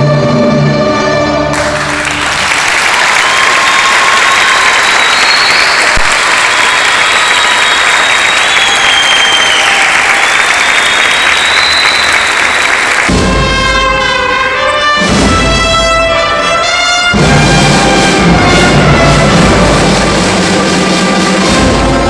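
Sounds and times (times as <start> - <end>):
orchestra of strings and brass: 0.0 - 22.0
audience applauding: 1.5 - 13.2
high whistling: 3.0 - 13.0.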